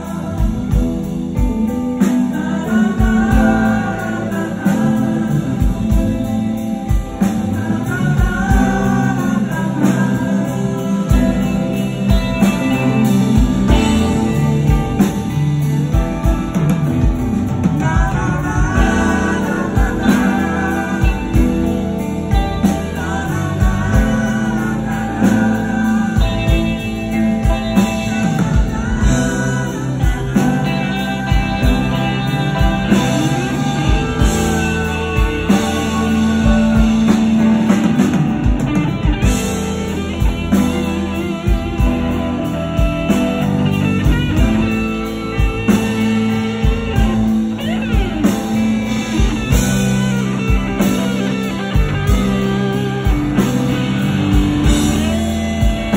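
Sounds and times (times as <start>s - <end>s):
bass guitar: 0.0s - 55.9s
rock drums: 0.0s - 55.9s
lead guitar solo: 18.8s - 55.9s.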